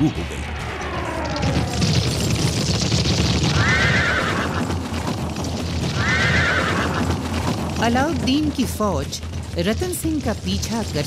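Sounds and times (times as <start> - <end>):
battle din with low rumble: 0.0 - 11.0
horse whinnying: 3.6 - 4.7, 6.0 - 7.2.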